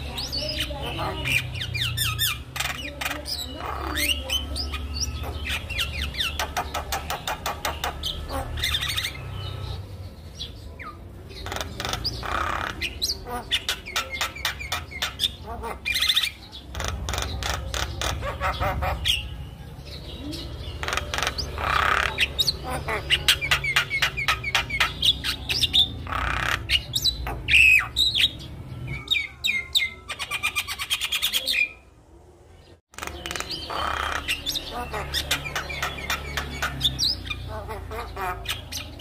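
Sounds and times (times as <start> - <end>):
bird singing varied song: 0.0 - 39.0.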